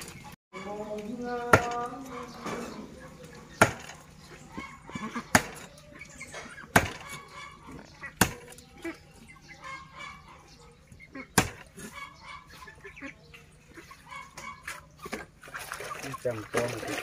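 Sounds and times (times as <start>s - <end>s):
cleaver chopping on wooden block: 3.6s - 3.9s, 5.3s - 5.6s, 6.7s - 7.1s, 8.2s - 8.6s, 11.4s - 11.7s.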